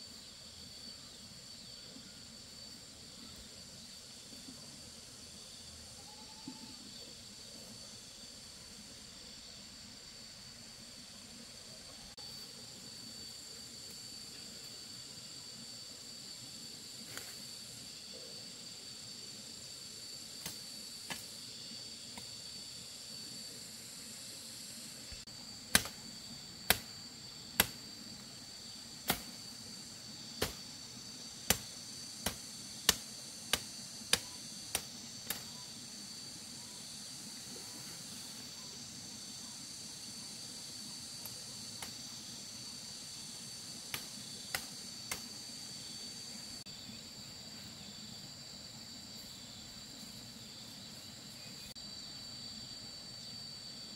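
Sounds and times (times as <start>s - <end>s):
insects trilling: 0.0s - 53.9s
blade chopping wood: 25.7s - 26.0s, 26.7s - 26.9s, 27.6s - 27.8s, 29.0s - 29.4s, 30.4s - 30.6s, 31.5s - 35.4s.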